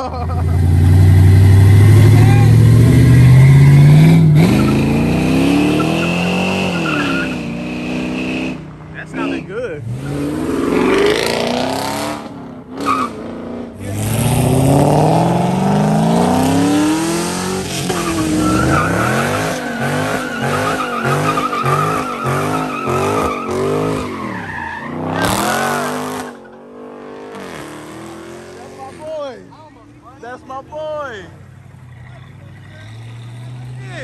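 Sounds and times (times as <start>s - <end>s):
car engines revving: 0.0s - 34.0s
tire squeal: 1.6s - 9.4s, 12.8s - 13.2s, 17.6s - 26.6s.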